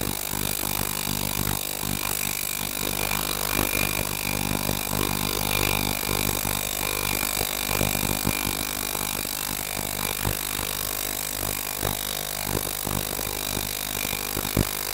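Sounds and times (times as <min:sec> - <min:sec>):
electric hum: 0:00.0 - 0:14.9
crackles: 0:11.4 - 0:14.9.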